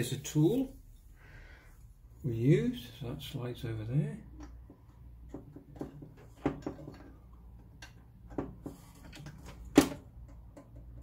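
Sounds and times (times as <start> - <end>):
light metal clicks and knocks: 4.2 - 11.0.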